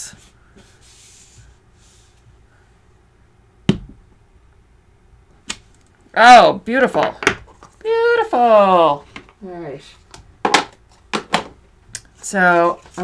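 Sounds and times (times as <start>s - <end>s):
faint brushing: 0.0s - 2.7s.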